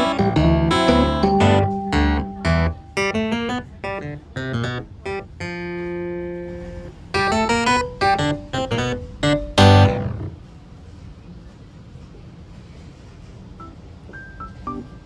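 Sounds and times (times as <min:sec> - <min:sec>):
plucked string melody: 0:00.0 - 0:10.4.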